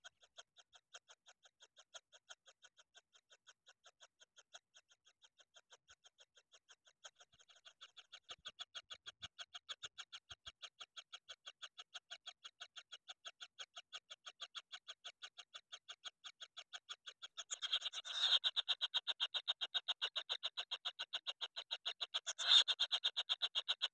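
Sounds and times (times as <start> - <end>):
nestlings calling rapidly: 17.5 - 19.2, 22.3 - 22.9.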